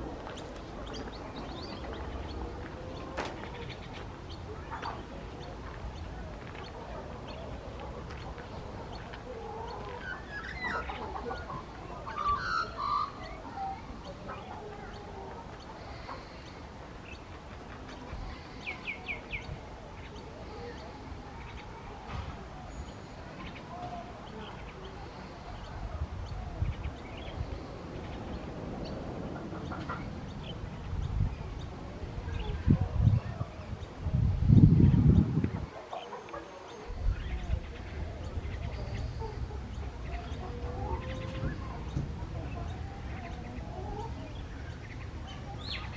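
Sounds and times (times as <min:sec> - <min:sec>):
chickens clucking: 0:00.0 - 0:34.2, 0:34.8 - 0:45.9
small birds chirping: 0:00.0 - 0:45.9.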